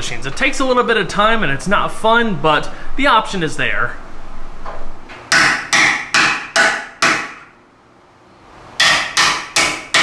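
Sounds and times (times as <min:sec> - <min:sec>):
hammer striking metal: 0:05.3 - 0:07.6, 0:08.8 - 0:10.0.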